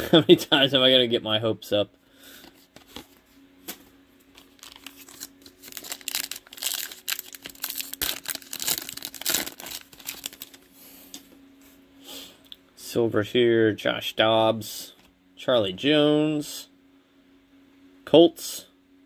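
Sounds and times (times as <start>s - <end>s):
plastic wrapper crinkling and tearing: 4.3s - 10.7s.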